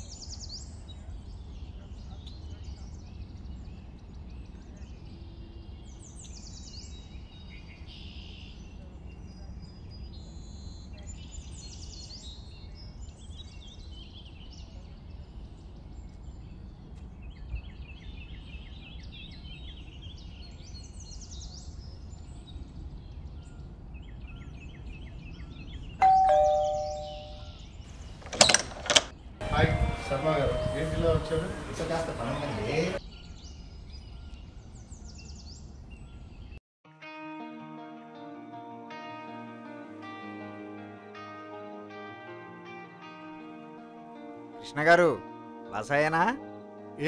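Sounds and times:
two-note doorbell ding-dong: 0:26.0 - 0:27.5, 0:28.4 - 0:32.1.

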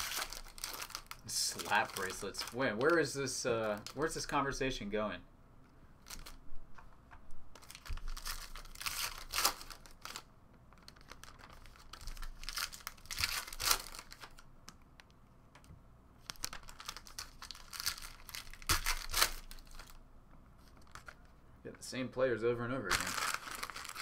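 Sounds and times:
foil wrappers crinkling and tearing: 0:00.0 - 0:04.4, 0:07.6 - 0:14.4, 0:16.2 - 0:20.0, 0:22.8 - 0:24.0.

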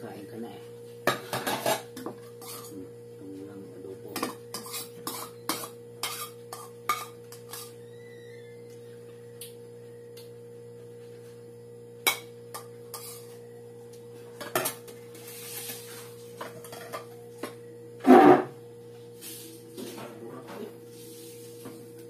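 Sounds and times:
steady low hum: 0:00.0 - 0:22.0
dishes clattering: 0:01.1 - 0:02.6.

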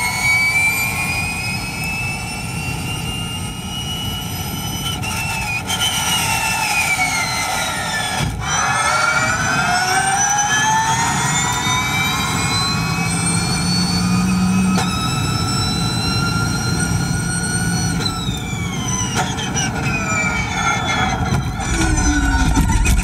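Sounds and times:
electric drivetrain whining: 0:00.0 - 0:23.0
tyre and road noise: 0:05.2 - 0:23.0.

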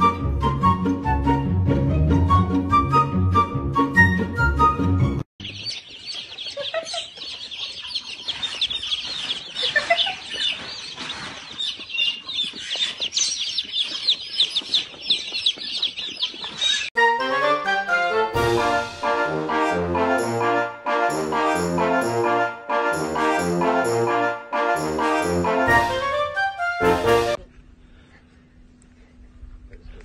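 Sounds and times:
music: 0:00.0 - 0:05.3, 0:17.0 - 0:27.4
baby chicks peeping: 0:05.4 - 0:16.9.

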